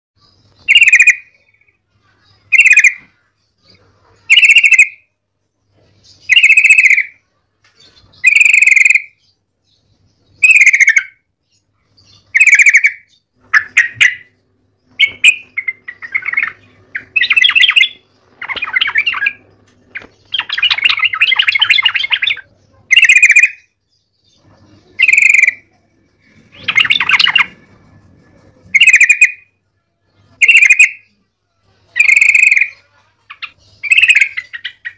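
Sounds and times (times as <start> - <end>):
bird calling loudly: 0.6 - 1.4, 2.5 - 3.1, 4.3 - 5.0, 6.3 - 7.2, 8.2 - 9.2, 10.4 - 11.2, 12.3 - 23.7, 25.0 - 25.6, 28.7 - 29.5, 30.4 - 31.0, 32.0 - 32.8, 33.4 - 34.9
bird chattering notes: 0.6 - 1.6, 2.4 - 3.1, 4.2 - 5.0, 6.2 - 7.2, 7.9 - 9.2, 10.4 - 11.2, 12.1 - 23.8, 24.6 - 29.5, 30.4 - 31.1, 31.9 - 34.9.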